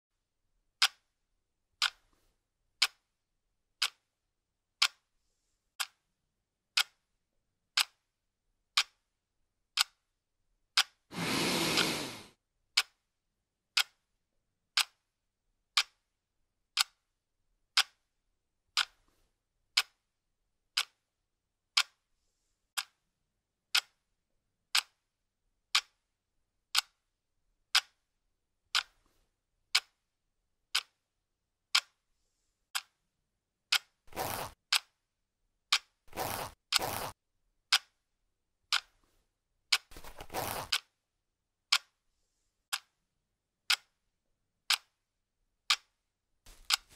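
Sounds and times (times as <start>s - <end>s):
clock ticking: 0.8s - 1.1s, 1.8s - 2.1s, 2.8s - 3.1s, 3.8s - 4.2s, 4.8s - 5.1s, 5.7s - 6.1s, 6.7s - 7.0s, 7.7s - 8.1s, 8.7s - 9.1s, 9.7s - 10.1s, 10.7s - 11.1s, 12.8s - 13.0s, 13.7s - 14.0s, 14.7s - 15.1s, 15.7s - 16.1s, 16.7s - 17.1s, 17.7s - 18.1s, 18.8s - 19.1s, 19.7s - 20.1s, 20.7s - 21.1s, 21.7s - 22.1s, 22.8s - 23.0s, 23.7s - 24.0s, 24.7s - 25.0s, 25.7s - 26.0s, 26.7s - 27.0s, 27.7s - 28.0s, 28.7s - 29.0s, 29.7s - 30.0s, 30.7s - 31.0s, 31.7s - 32.0s, 32.7s - 33.0s, 33.7s - 34.0s, 34.7s - 35.0s, 35.7s - 36.0s, 36.7s - 38.0s, 38.7s - 39.0s, 39.7s - 40.8s, 41.7s - 42.0s, 42.7s - 43.0s, 43.7s - 44.0s, 44.7s - 45.0s, 45.7s - 46.9s
zipper being unzipped: 11.2s - 12.3s, 34.1s - 34.6s, 36.1s - 37.1s, 39.9s - 40.7s.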